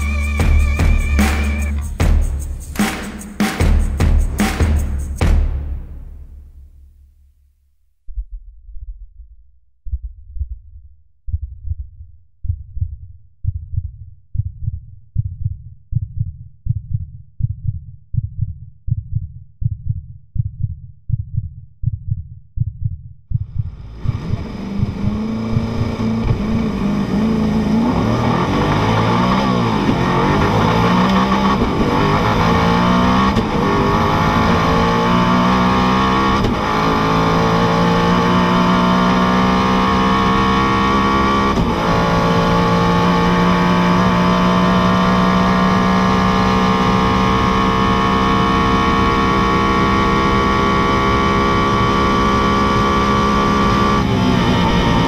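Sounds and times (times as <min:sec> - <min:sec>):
slow heartbeat thumps: 0:07.9 - 0:47.4
car engine accelerating with upshifts: 0:23.7 - 0:55.0.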